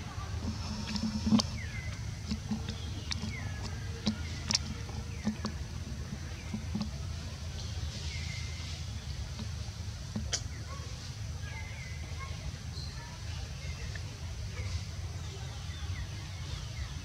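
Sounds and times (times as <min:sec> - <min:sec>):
steady low rumble: 0:00.0 - 0:12.2.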